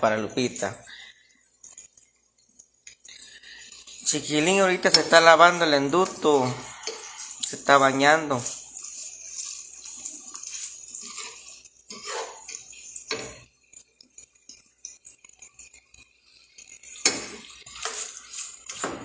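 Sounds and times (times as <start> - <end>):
faint gas hiss: 2.2 - 13.4
pots and pans clinking: 2.9 - 13.5, 16.4 - 19.0.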